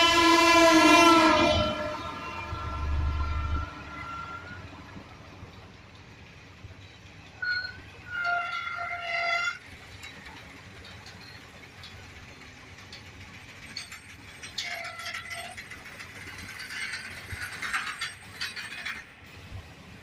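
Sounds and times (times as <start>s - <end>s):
train horn: 0.0s - 4.6s
metallic wheel squeals: 0.2s - 5.1s, 7.4s - 12.0s, 13.6s - 19.1s
freight wagons clattering on rails: 0.8s - 19.8s.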